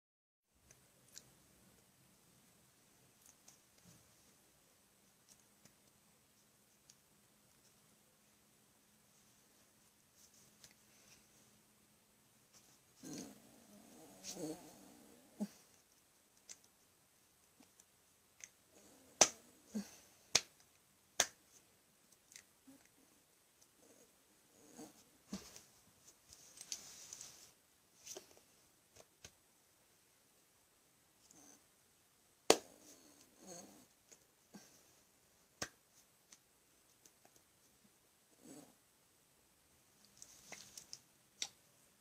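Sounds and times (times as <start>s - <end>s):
hands slapping: 19.2s - 19.4s, 20.3s - 21.6s, 32.5s - 32.7s, 35.6s - 36.4s
fingers snapping: 21.2s - 21.4s.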